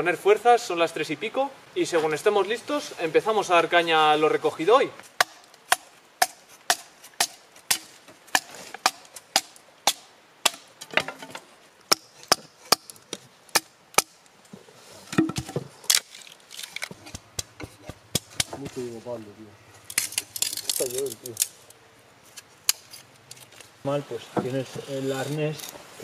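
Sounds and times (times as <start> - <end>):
axe chopping wood: 5.2 - 14.2, 16.9 - 18.8.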